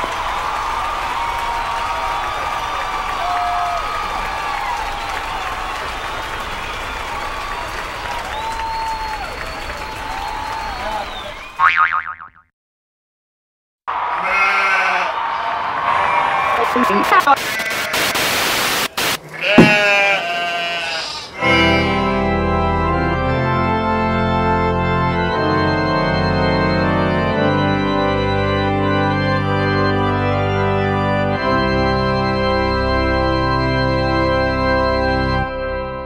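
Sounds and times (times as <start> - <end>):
organ chords: 21.4 - 36.0.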